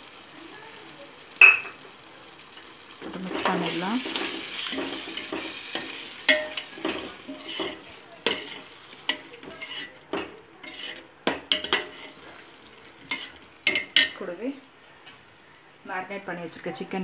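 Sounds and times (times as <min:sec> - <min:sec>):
faint sizzle: 0:00.0 - 0:17.0
spoon scraping metal pot: 0:03.4 - 0:14.2.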